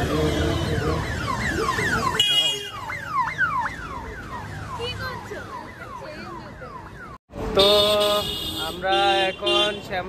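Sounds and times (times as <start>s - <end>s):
low street noise: 0.0s - 10.0s.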